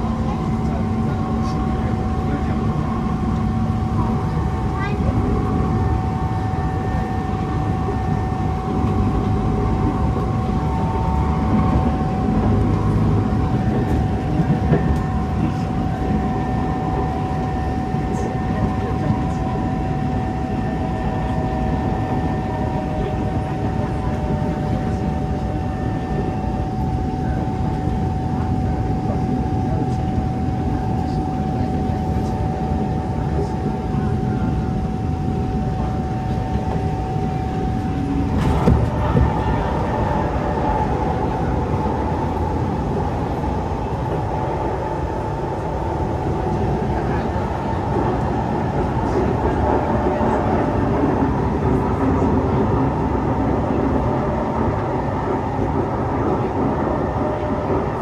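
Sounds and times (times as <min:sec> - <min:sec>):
train wheels and motors rumbling: 0:00.0 - 0:58.0
train motor whine: 0:36.2 - 0:58.0.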